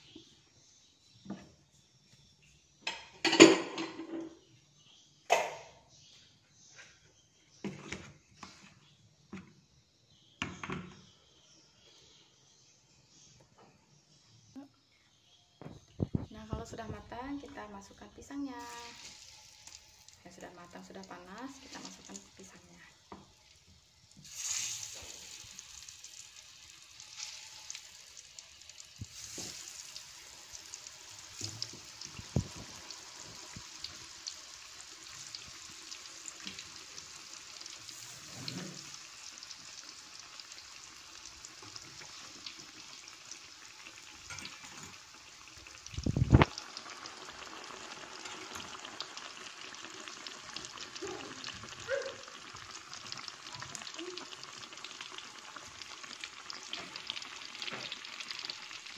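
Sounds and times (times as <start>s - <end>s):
bananas sizzling in hot oil: 15.6s - 58.9s.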